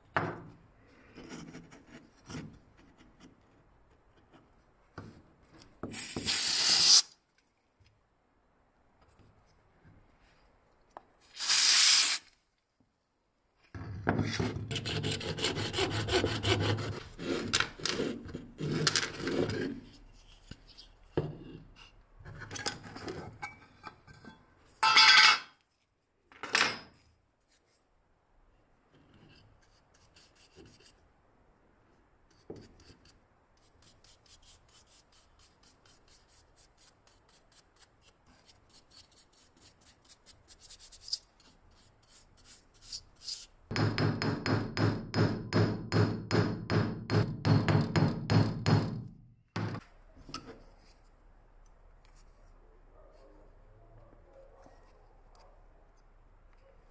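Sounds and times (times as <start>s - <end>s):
aerosol spray can hissing: 5.9s - 7.1s, 11.3s - 12.3s.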